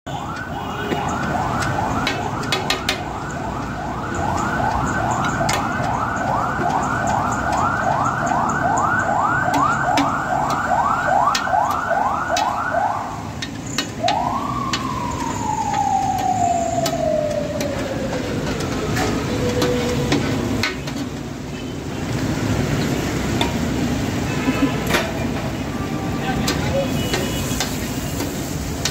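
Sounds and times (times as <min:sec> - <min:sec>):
electronic siren yelping: 0:00.1 - 0:13.3, 0:13.9 - 0:20.1.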